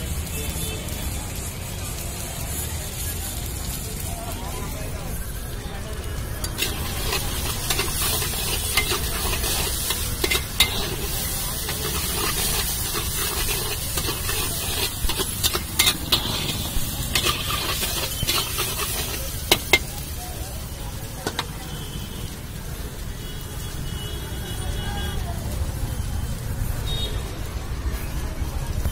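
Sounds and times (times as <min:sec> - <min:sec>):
potatoes sizzling in oil: 0:00.0 - 0:28.9
metal spatula scraping a pan: 0:06.4 - 0:20.0.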